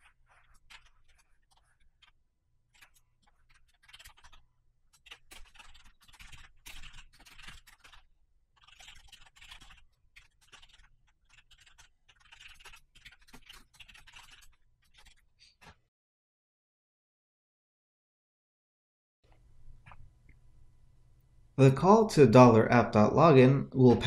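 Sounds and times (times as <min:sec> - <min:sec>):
faint keyboard typing: 0:00.0 - 0:15.8.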